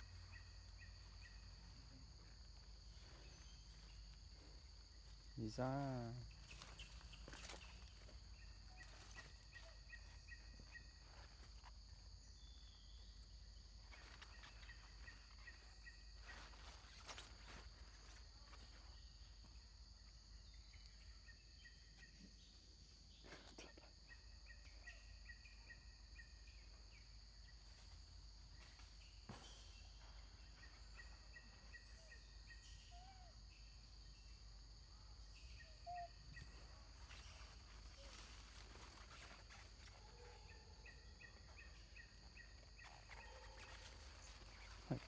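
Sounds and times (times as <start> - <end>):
faint chirping: 0.0 - 19.1, 28.6 - 45.0.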